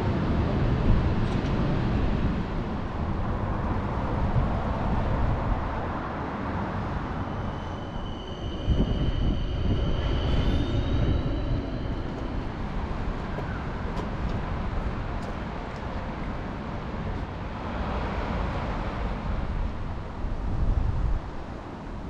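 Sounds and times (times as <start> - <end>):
tram low rumble: 0.0 - 22.0
high whining tones: 6.5 - 14.3.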